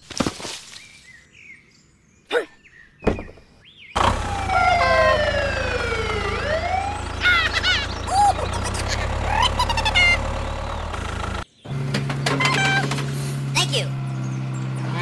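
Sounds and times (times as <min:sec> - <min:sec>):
toy engine rumble: 0:04.0 - 0:13.8
toy siren wailing: 0:04.1 - 0:10.2.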